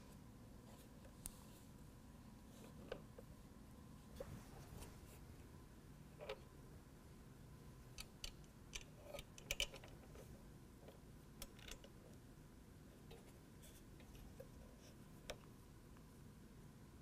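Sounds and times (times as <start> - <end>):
faint metal hardware clicks: 7.9 - 12.0.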